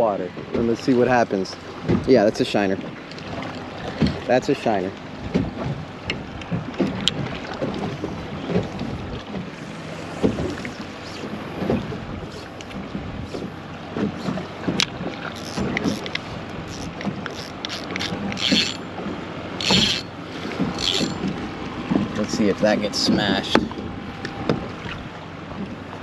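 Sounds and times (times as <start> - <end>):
waves slapping boat hull: 0.0 - 26.0
wind buffeting microphone: 5.1 - 25.8
fishing reel rustles and clicks: 14.8 - 18.9, 19.6 - 21.3.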